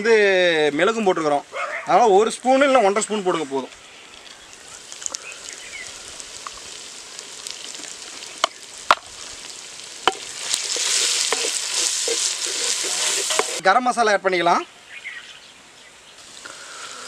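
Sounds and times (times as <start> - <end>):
food sizzling in oil: 2.2 - 13.6, 16.2 - 17.0.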